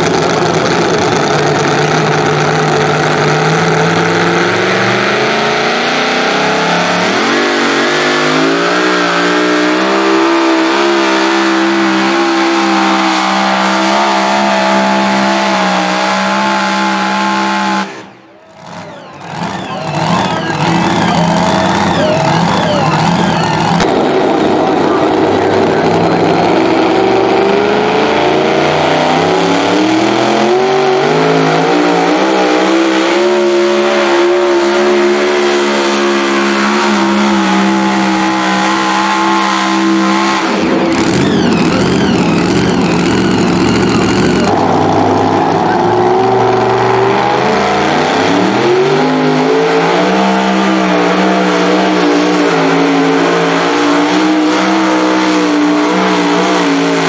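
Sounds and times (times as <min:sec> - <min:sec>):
loud rushing noise: 0:00.0 - 0:57.0
supercharged truck engine under load: 0:00.0 - 0:57.0
truck engine revving: 0:00.0 - 0:57.0.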